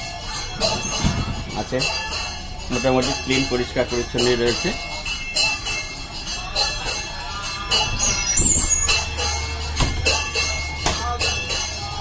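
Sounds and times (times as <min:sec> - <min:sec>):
jingling bell-like percussion: 0:00.0 - 0:12.0
music with steady beat: 0:07.6 - 0:12.0.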